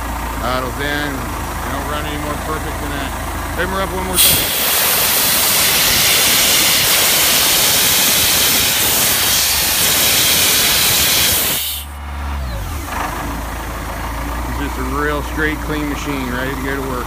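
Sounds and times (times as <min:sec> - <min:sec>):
engine running: 0:00.0 - 0:17.0
compressed air hissing: 0:04.2 - 0:12.0.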